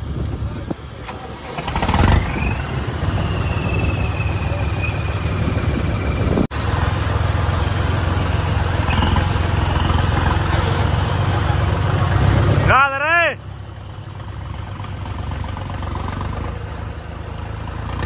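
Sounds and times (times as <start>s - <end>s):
tractor diesel engine running: 0.0s - 18.0s.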